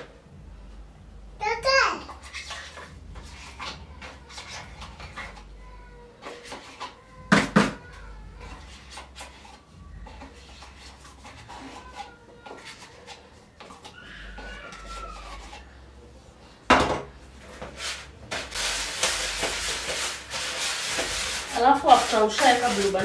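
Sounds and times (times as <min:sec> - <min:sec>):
spoon clicking and scraping tub: 0:17.6 - 0:23.0.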